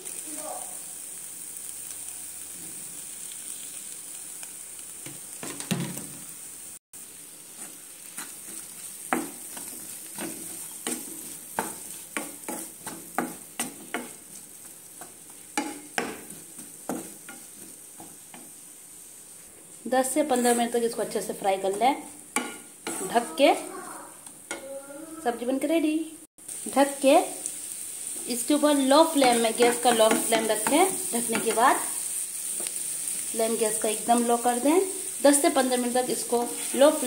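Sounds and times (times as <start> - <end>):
vegetables sizzling in oil: 0.0 - 37.0
wooden spatula knocking pan: 9.1 - 14.2, 15.0 - 18.5, 22.4 - 23.1, 29.1 - 31.7.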